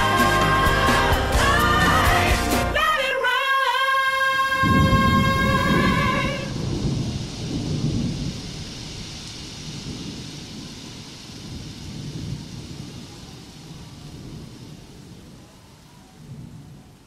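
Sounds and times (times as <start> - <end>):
rain falling: 0.0 - 3.1, 4.2 - 17.0
low rolling thunder: 4.6 - 17.0.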